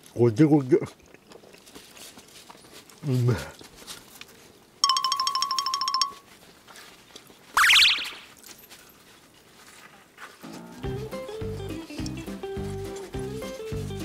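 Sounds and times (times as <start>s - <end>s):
rising boing swoop: 7.6s - 8.2s.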